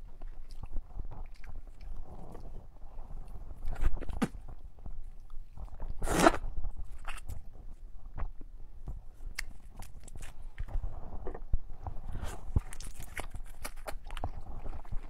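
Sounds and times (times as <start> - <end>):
loud mouth sound: 6.0 - 6.5.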